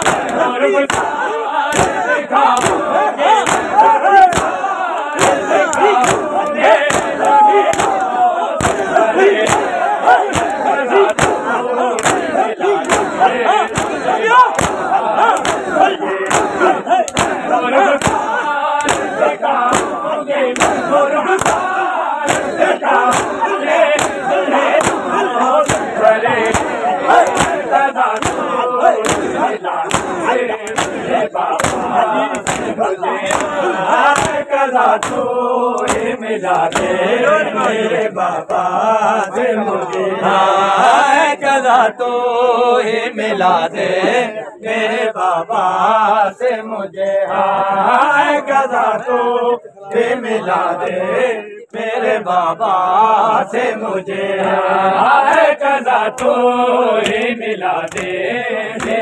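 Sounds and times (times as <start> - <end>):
hands slapping bare chests: 0.0 - 37.8, 56.1 - 56.4, 57.0 - 57.2, 57.8 - 59.0
crowd of men chanting: 0.0 - 59.0.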